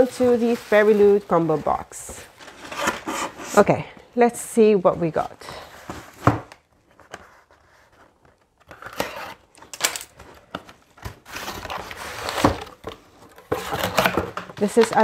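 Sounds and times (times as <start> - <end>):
cardboard scraping and tearing: 0.0 - 3.6, 11.2 - 12.8
paper packing rustling: 0.0 - 3.6, 5.9 - 15.0.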